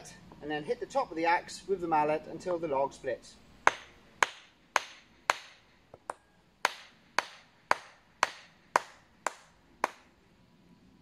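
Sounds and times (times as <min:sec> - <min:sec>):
wooden mallet striking axe head: 0:03.6 - 0:10.1.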